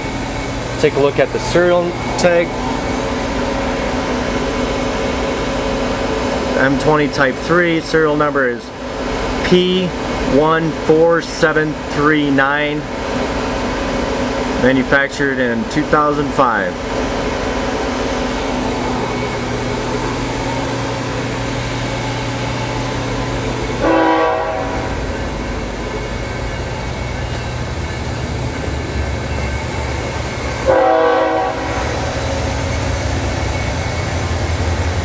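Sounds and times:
drum fan whirring: 0:00.0 - 0:35.0
brief horn-like tone: 0:23.8 - 0:25.0, 0:30.7 - 0:31.9.

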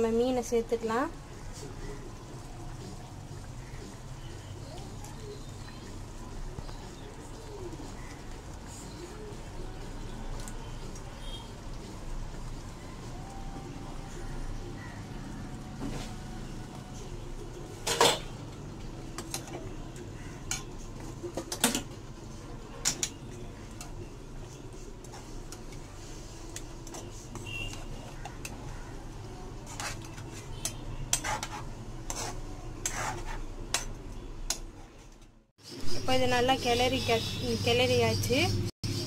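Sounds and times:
ladle scraping metal pan: 0:29.6 - 0:33.9.

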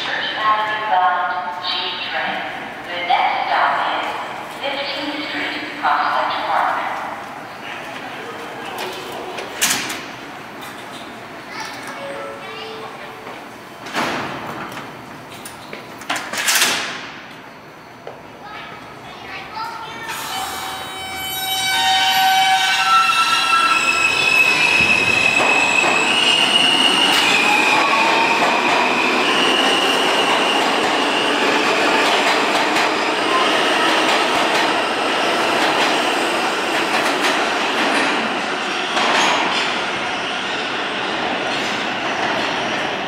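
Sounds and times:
subway train motors whining: 0:00.0 - 0:43.0
train wheels clattering on rails: 0:24.6 - 0:39.9.

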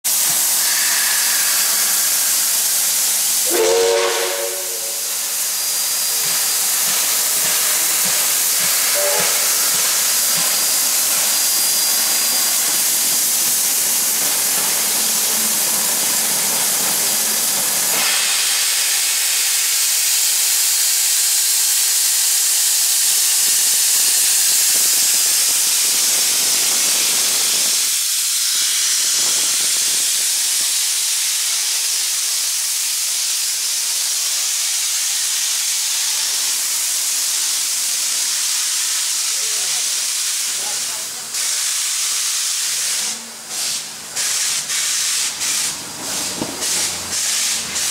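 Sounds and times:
steam locomotive hissing: 0:00.1 - 0:47.9
short whistle toot: 0:00.6 - 0:02.0, 0:03.4 - 0:05.2, 0:08.9 - 0:09.7.

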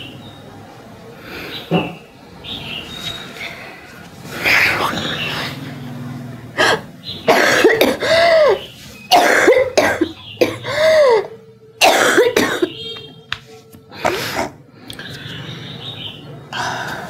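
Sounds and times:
woman coughing harshly: 0:07.3 - 0:12.9.

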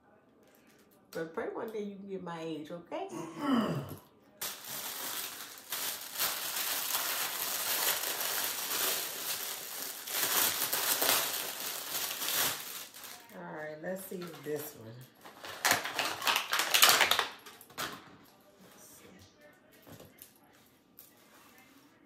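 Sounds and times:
packaging crinkling: 0:04.4 - 0:13.4, 0:15.2 - 0:17.9.

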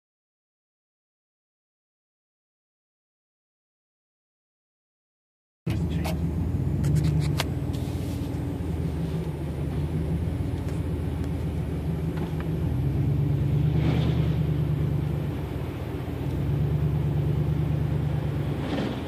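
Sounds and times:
vehicle engine and road hum: 0:05.7 - 0:19.0.

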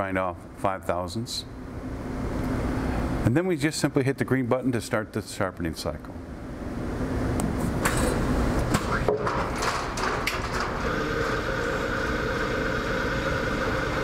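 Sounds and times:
clicks and knocks: 0:08.7 - 0:10.8
high-toned machine hum: 0:10.9 - 0:14.0.

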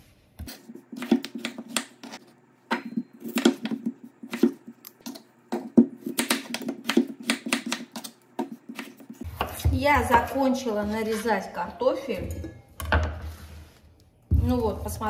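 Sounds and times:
knife cutting potatoes on board: 0:00.4 - 0:09.7.

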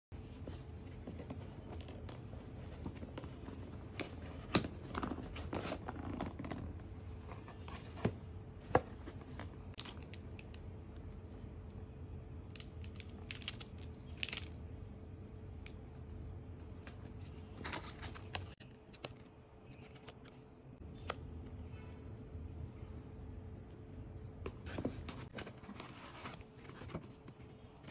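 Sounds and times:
faint steady hum: 0:00.1 - 0:27.9
paper rustling and crinkling: 0:17.1 - 0:20.4, 0:24.6 - 0:27.9.

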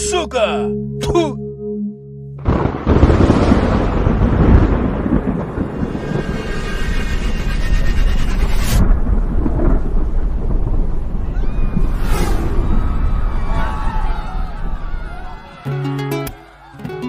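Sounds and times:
thunderclap and rumble: 0:02.4 - 0:15.6.

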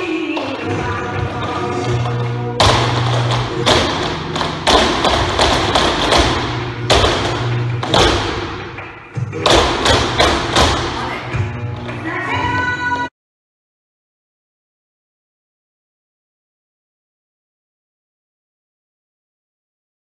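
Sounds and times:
faint music: 0:00.0 - 0:13.1
shoes stamping on wooden floor: 0:02.6 - 0:11.1.

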